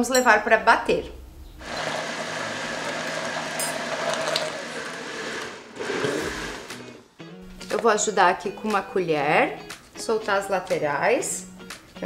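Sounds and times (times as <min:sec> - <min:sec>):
blender motor running: 0:01.6 - 0:07.1.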